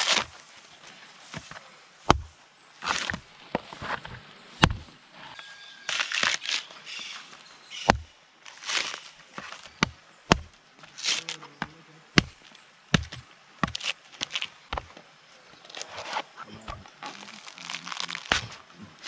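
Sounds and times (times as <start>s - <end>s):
husk fibres rustling and tearing: 0.0s - 1.5s, 5.9s - 7.4s, 8.4s - 9.8s, 10.8s - 11.7s, 12.3s - 14.9s, 15.6s - 19.0s
machete whacking coconut husk: 17.9s - 18.6s.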